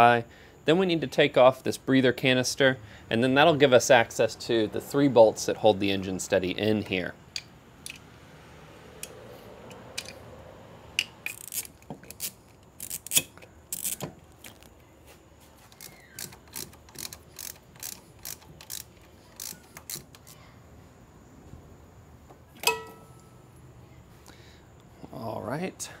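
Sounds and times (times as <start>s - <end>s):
socket ratchet clicking: 7.3s - 8.1s, 9.0s - 10.2s, 11.0s - 14.1s, 15.7s - 20.4s.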